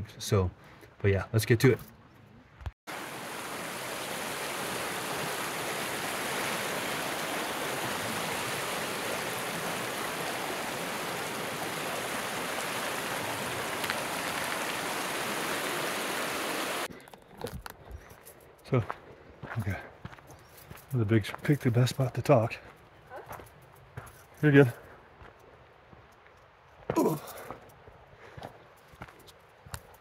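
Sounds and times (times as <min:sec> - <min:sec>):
creek flowing over rocks: 0:02.9 - 0:16.9.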